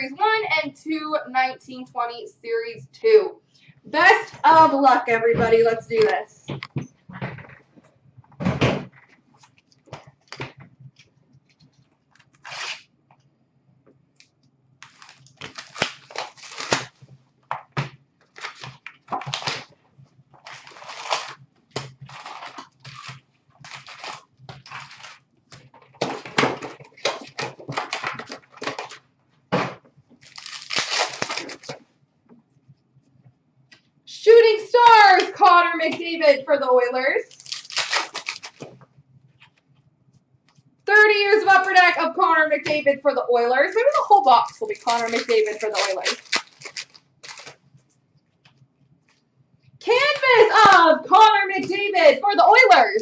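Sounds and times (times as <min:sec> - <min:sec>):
card pack wrappers crinkling: 0:14.8 - 0:17.0, 0:18.2 - 0:19.7, 0:20.4 - 0:29.0, 0:30.2 - 0:31.8, 0:37.2 - 0:38.8, 0:43.8 - 0:47.6.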